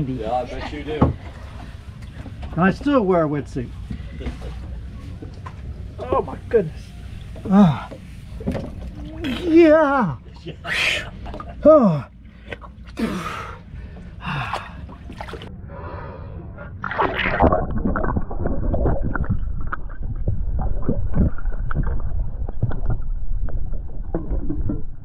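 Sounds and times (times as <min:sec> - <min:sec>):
muffled underwater bubbling: 0:16.6 - 0:25.0.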